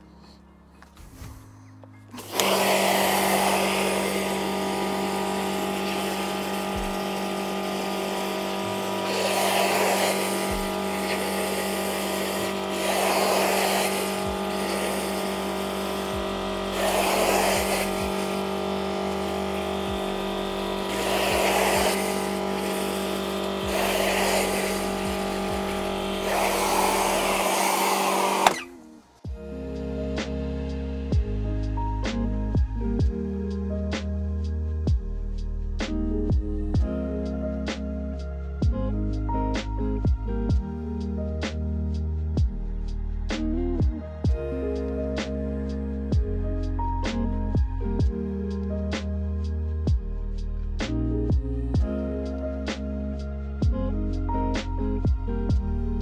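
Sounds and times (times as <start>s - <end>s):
water jet hissing on stone: 2.2s - 28.7s
pressure washer motor humming: 2.2s - 29.0s.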